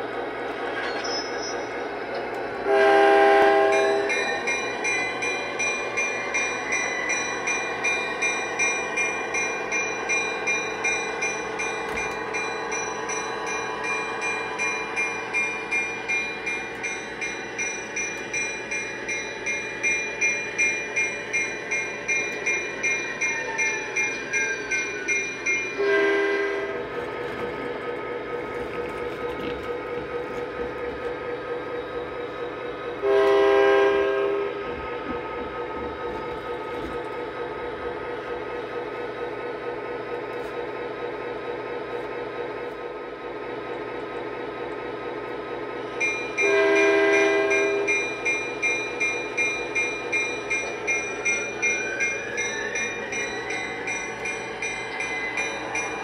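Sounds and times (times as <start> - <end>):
model locomotive horn blast: 2.6 - 4.3, 25.8 - 26.8, 33.0 - 34.6, 46.4 - 48.0
repeating high ringing tone: 3.8 - 25.8.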